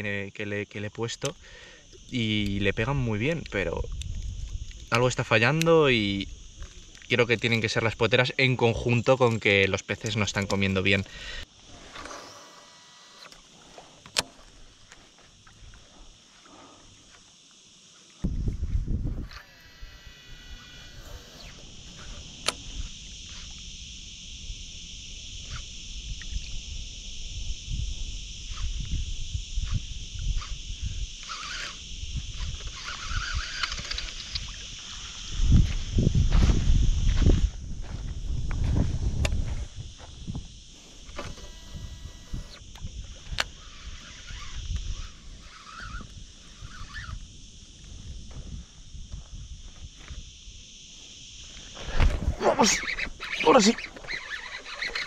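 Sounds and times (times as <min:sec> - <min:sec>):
insects chirring: 0:00.0 - 0:55.0
wind and handling rumble: 0:02.0 - 0:08.0, 0:25.3 - 0:50.3
fishing reel spool whirring: 0:11.3 - 0:13.4, 0:19.1 - 0:24.6, 0:28.4 - 0:35.4, 0:41.0 - 0:47.3, 0:51.8 - 0:55.0
sharp reel click: 0:31.2 - 0:34.6, 0:52.6 - 0:55.0
wind rumble: 0:34.3 - 0:40.7.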